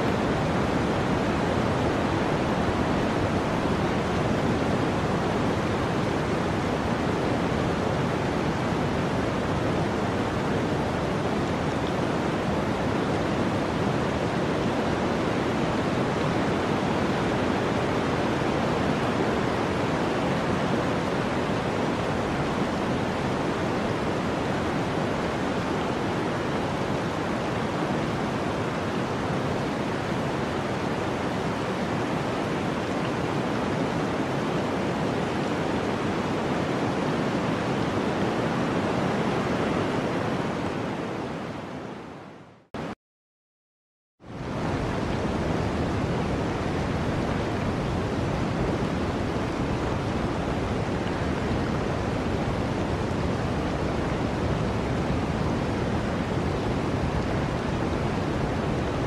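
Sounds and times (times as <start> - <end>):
storm wind rushing: 44.3 - 59.0.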